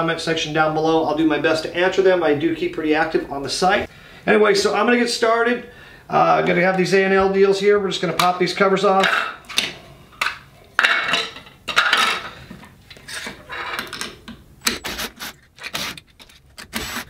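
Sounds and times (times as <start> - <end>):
plastic and metal parts scraping: 11.7 - 17.0.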